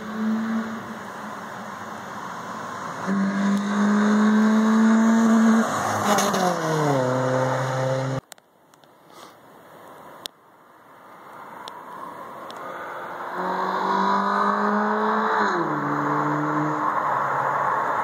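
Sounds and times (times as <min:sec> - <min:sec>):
car engine at high revs passing: 0:00.0 - 0:08.2, 0:12.0 - 0:18.0.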